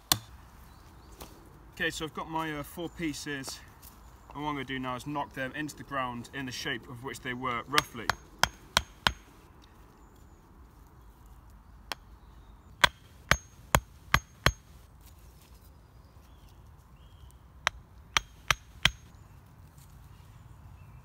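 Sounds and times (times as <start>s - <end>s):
axe knocking on wood: 7.8s - 9.3s.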